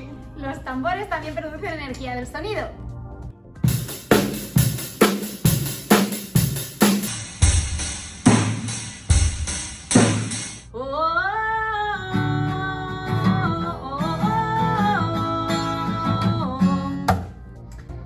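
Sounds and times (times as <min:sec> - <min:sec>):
drum kit struck hard: 0:03.7 - 0:10.7.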